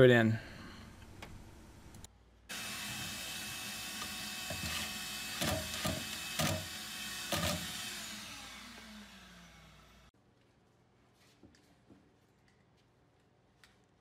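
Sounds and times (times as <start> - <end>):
power tool motor running: 2.5 - 10.1.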